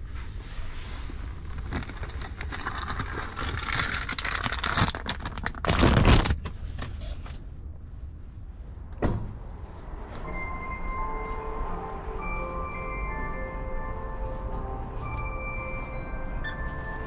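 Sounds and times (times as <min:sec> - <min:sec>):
plastic bag crinkling: 0:01.2 - 0:06.6
steady low rumble: 0:06.6 - 0:17.0
thump: 0:09.0 - 0:09.4.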